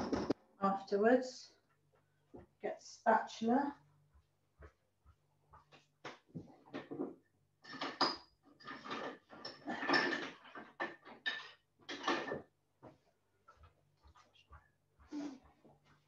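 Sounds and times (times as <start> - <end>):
kitchen utensils clattering: 6.8 - 12.5.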